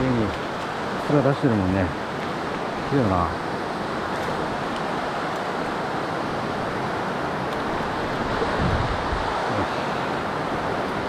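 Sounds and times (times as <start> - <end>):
river rushing over stones: 0.0 - 11.0
wind buffeting microphone: 7.6 - 10.7.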